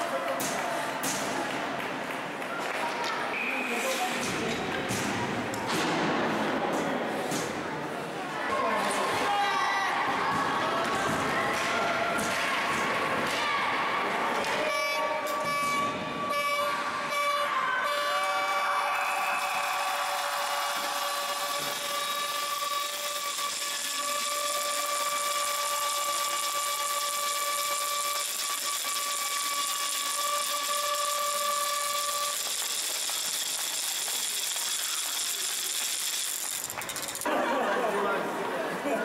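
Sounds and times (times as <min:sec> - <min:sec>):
electric game horn tone: 0:14.6 - 0:18.7, 0:21.0 - 0:32.5.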